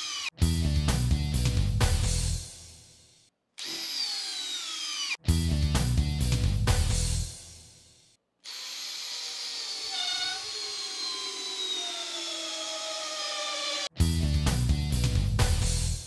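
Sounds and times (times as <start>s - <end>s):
hammer drill driving screw into wood: 0.0s - 0.3s, 3.6s - 5.2s, 8.4s - 13.9s.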